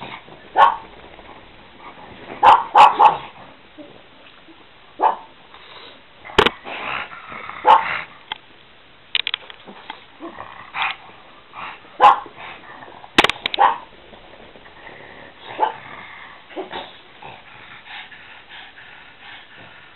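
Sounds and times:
dogs barking and yipping: 0.0 - 1.4, 2.3 - 3.4, 5.0 - 5.4, 7.6 - 8.1, 11.7 - 12.6, 13.5 - 14.0, 15.4 - 15.8.

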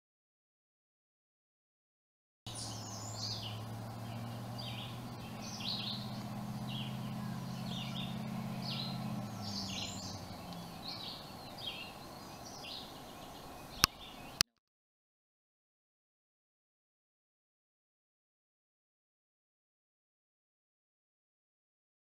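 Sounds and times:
low steady drone: 2.5 - 14.4
small bird chirping: 2.5 - 14.4.

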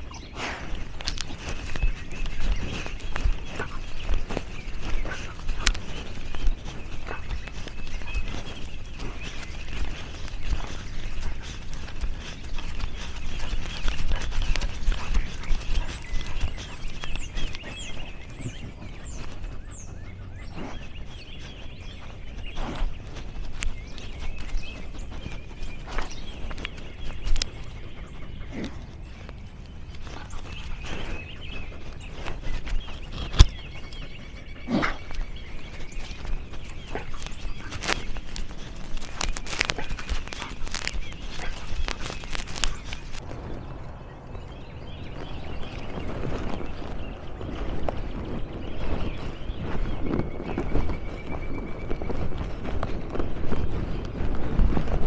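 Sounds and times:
short breathy puffs: 0.0 - 43.2
irregular footsteps: 0.0 - 43.6
small birds chirping: 0.0 - 55.0
steady low rumble: 0.0 - 55.0.

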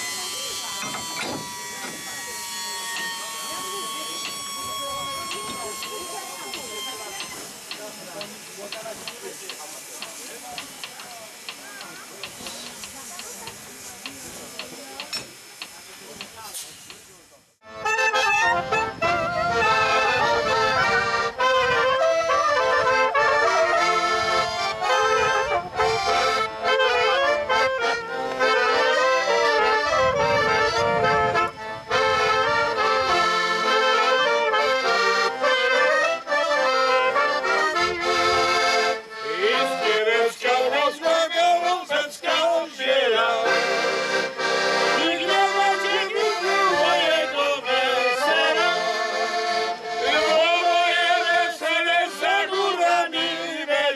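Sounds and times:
folk band playing: 0.0 - 15.1, 17.6 - 53.9
accordion: 0.0 - 16.7, 17.6 - 53.9
clarinet: 17.6 - 40.0, 43.2 - 51.2.

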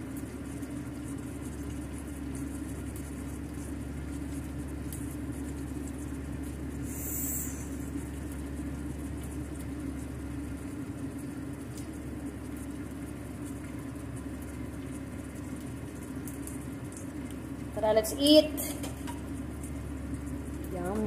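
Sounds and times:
low mechanical hum: 0.0 - 21.0
brief hiss: 6.9 - 7.8.

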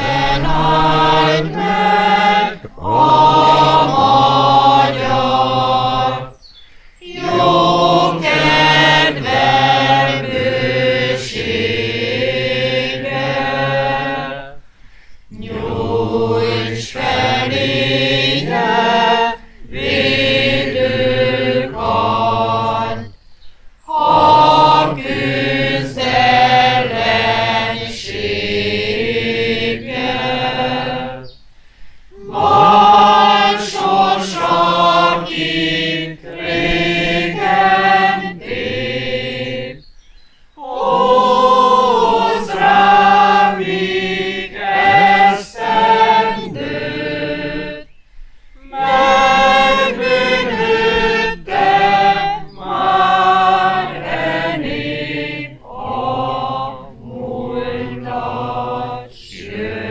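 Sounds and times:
person singing chant-like melody: 0.0 - 23.2, 23.8 - 31.4, 32.1 - 39.8, 40.5 - 47.9, 48.6 - 59.9.

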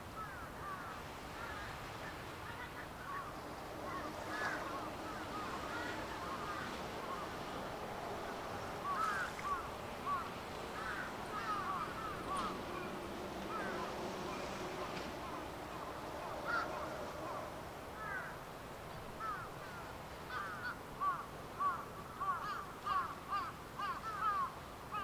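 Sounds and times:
birds calling: 0.0 - 25.0.

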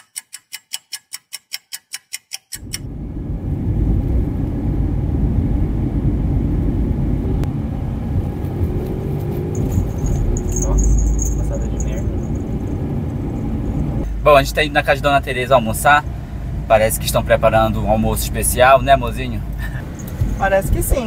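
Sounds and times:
clock ticking: 0.0 - 2.8
car engine and road rumble: 2.6 - 21.0.

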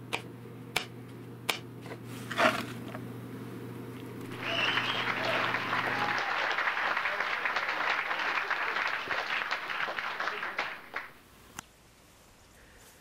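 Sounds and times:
applause: 4.3 - 11.2.

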